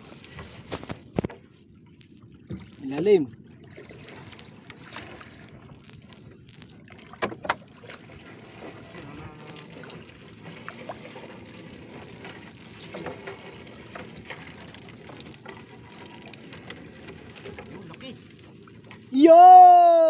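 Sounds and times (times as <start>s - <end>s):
fishing net hauled into boat: 0.0s - 1.8s, 2.4s - 20.0s
sea water washing: 0.0s - 20.0s
wind: 0.0s - 20.0s.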